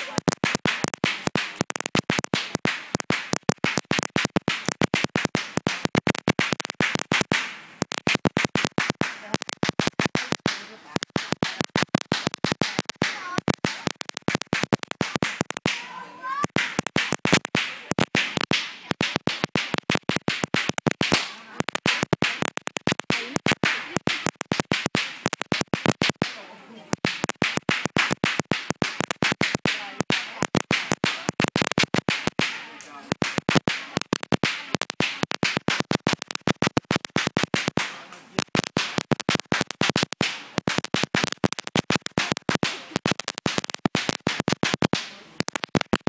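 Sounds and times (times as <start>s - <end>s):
firecrackers crackling: 0.0s - 46.0s.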